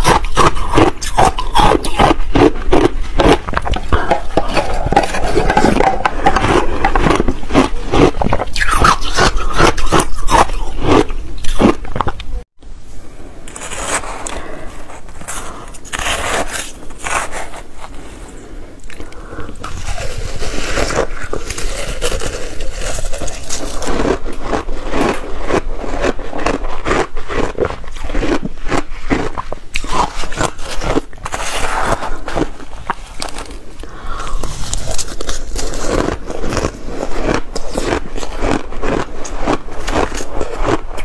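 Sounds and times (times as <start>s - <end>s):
crunching and chewing ice: 0.0s - 12.4s, 13.5s - 41.0s
metal spoon scraping ice: 13.5s - 18.1s, 19.6s - 28.0s, 34.4s - 38.5s.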